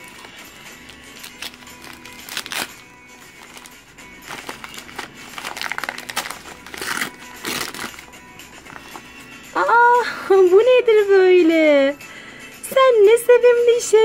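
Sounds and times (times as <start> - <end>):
wrapping paper crinkling: 0.0 - 9.2
background music: 0.0 - 14.0.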